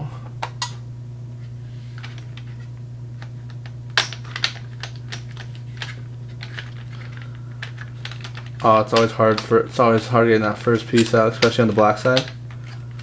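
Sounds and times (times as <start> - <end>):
low steady hum: 0.0 - 13.0
plastic pieces clacking: 3.6 - 13.0
plastic pieces clicking: 3.6 - 13.0.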